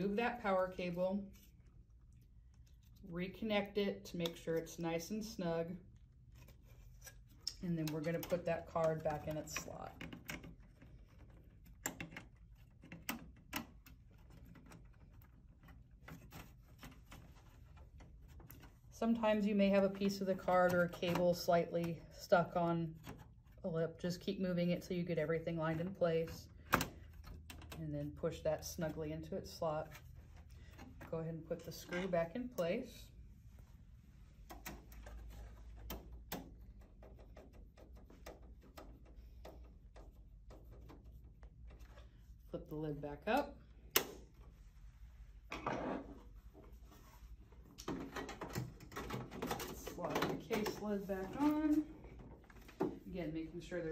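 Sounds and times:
clicks and knocks of computer parts: 47.8s - 50.9s.

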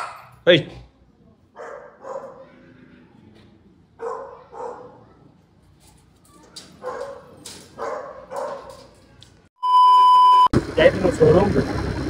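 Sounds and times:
dog barking: 0.0s - 0.3s, 1.6s - 2.5s, 4.0s - 5.2s, 6.8s - 8.8s.

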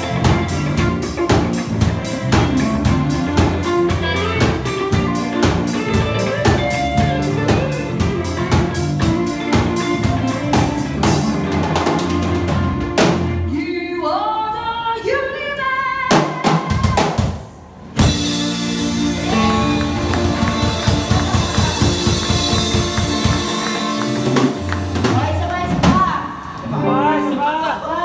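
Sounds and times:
live band playing: 0.0s - 13.6s, 16.1s - 28.0s
loud band hit: 18.0s - 26.1s.

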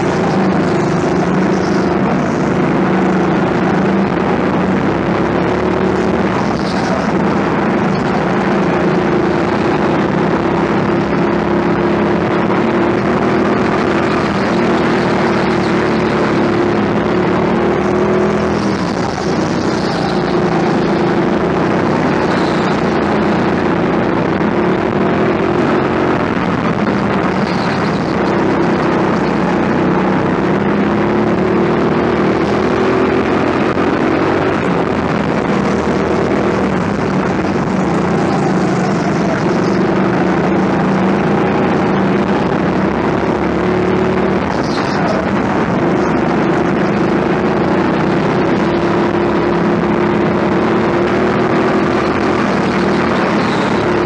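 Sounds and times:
go-kart engine running: 0.0s - 54.0s.

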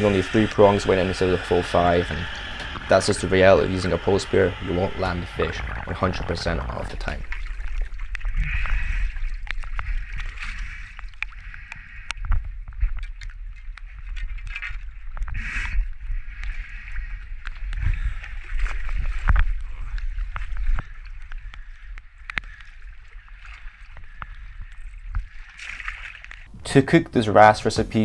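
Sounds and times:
water rushing: 0.0s - 8.4s
water sloshing: 0.0s - 11.8s, 16.2s - 27.0s
underwater low rumble: 0.0s - 25.6s.

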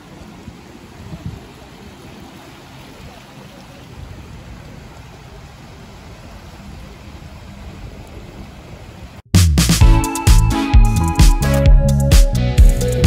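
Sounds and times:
wind buffeting the microphone: 0.0s - 9.2s.

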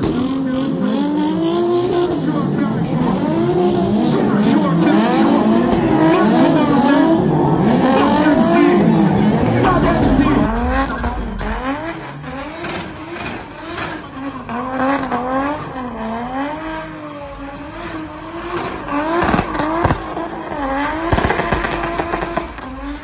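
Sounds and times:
car engine revving: 0.0s - 23.0s
sharp cracks: 18.6s - 22.7s.

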